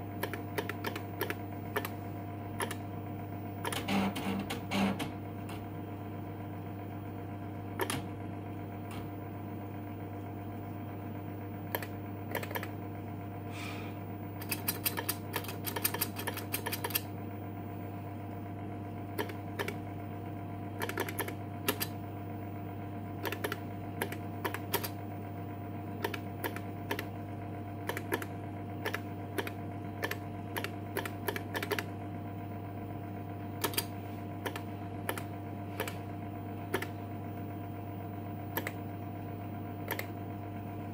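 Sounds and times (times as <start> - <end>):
steady low hum: 0.0 - 40.9
keyboard clicks: 0.2 - 2.0, 2.6 - 2.8, 7.8 - 8.0, 11.7 - 12.7, 14.4 - 17.1, 19.2 - 19.8, 20.8 - 22.0, 23.2 - 25.0, 26.0 - 27.1, 27.9 - 31.9, 33.6 - 36.0, 36.7 - 36.9, 38.5 - 38.8, 39.9 - 40.1.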